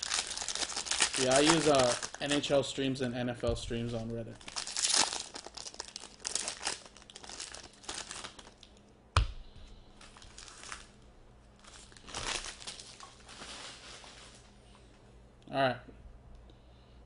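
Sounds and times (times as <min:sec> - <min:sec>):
card pack wrapper tearing: 0:00.0 - 0:02.5, 0:04.4 - 0:08.6, 0:10.2 - 0:10.9
cards rustling: 0:00.0 - 0:02.5.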